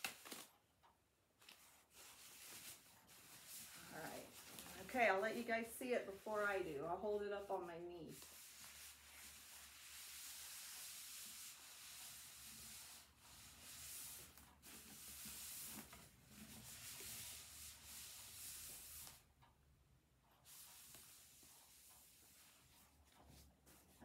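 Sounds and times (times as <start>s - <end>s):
paper rustling and crinkling: 0.0s - 0.6s, 1.4s - 6.7s, 8.1s - 19.2s.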